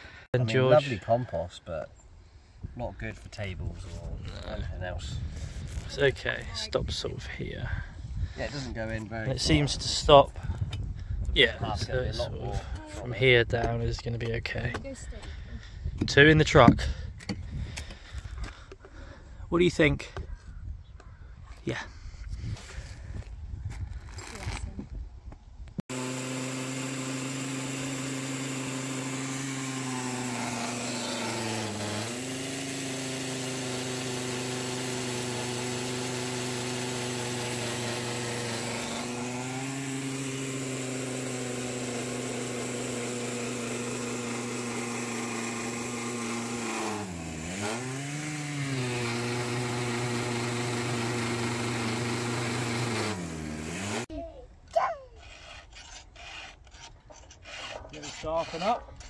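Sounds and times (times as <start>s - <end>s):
chainsaw cutting wood under load: 25.9s - 54.1s, 55.2s - 59.0s.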